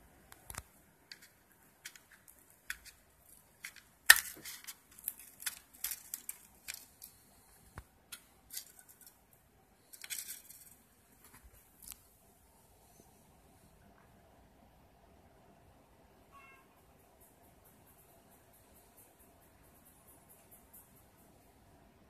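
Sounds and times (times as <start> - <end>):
handling scratches: 0.4 - 9.2, 9.9 - 12.0.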